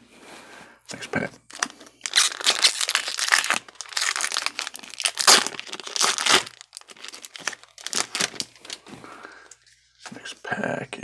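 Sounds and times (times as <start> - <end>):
foil wrapper crinkling: 1.5 - 8.8
cards rustling: 1.5 - 10.2.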